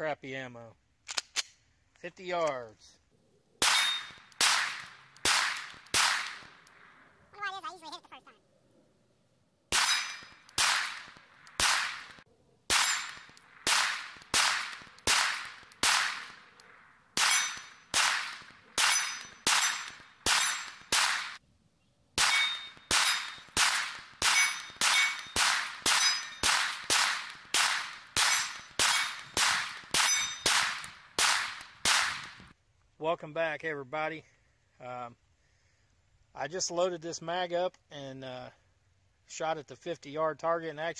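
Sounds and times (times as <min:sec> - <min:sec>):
pistol shots with echo: 0:03.6 - 0:06.9, 0:09.7 - 0:16.6, 0:17.2 - 0:21.4, 0:22.2 - 0:32.4.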